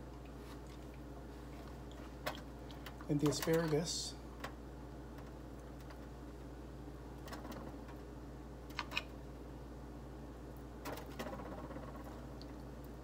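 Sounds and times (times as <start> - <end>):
low room tone hum: 0.0 - 13.0.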